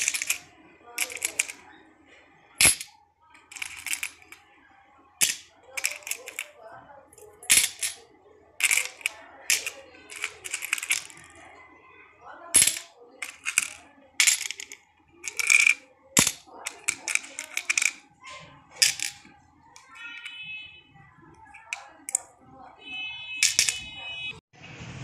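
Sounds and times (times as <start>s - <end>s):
coins clinking into a bowl: 0.0s - 1.6s, 2.6s - 4.4s, 5.2s - 6.6s, 7.2s - 8.0s, 8.6s - 11.3s, 12.5s - 18.0s, 18.8s - 20.4s, 21.5s - 22.2s, 23.4s - 23.9s.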